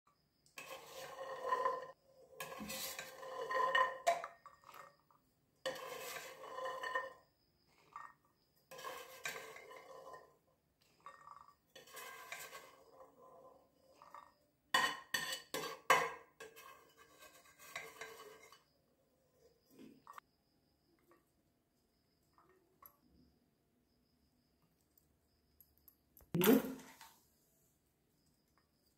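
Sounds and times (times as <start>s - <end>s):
spoon scraping and clinking on plate: 0.5s - 7.2s, 7.8s - 18.8s.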